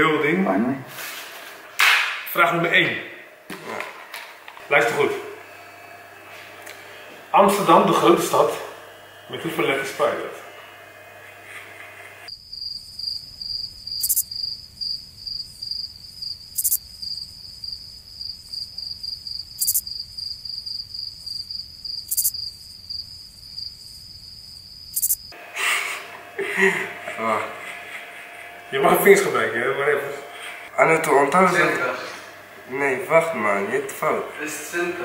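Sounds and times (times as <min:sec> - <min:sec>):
crickets chirping: 0:12.3 - 0:30.8.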